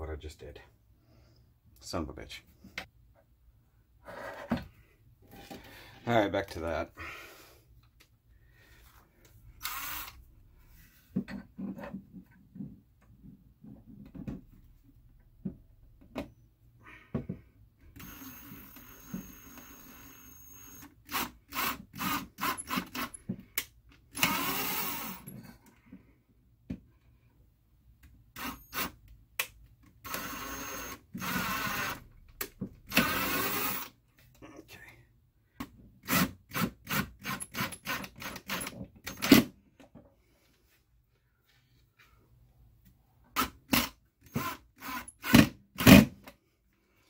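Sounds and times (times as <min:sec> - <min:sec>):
cordless drill driving screw: 0:09.6 - 0:10.2, 0:18.0 - 0:23.2, 0:24.1 - 0:25.3, 0:28.4 - 0:29.0, 0:30.0 - 0:32.0, 0:32.9 - 0:34.0, 0:36.0 - 0:39.4, 0:43.4 - 0:46.1.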